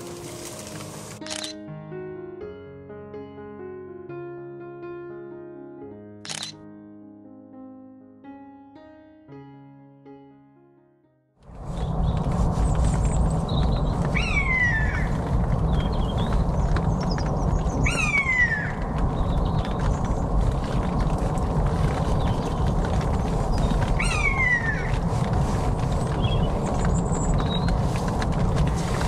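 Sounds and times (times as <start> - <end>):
low rushing background: 11.5 - 29.0
small birds chirping: 11.6 - 25.1, 25.8 - 28.0.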